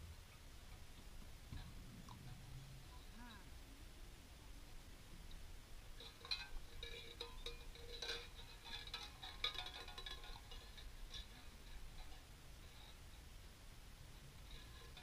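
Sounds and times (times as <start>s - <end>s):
tin cans rattling and clinking: 6.0s - 12.2s.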